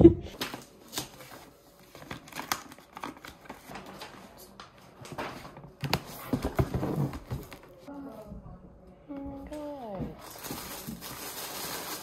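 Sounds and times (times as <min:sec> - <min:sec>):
wrapping paper rustling: 0:00.4 - 0:07.8, 0:10.1 - 0:12.0.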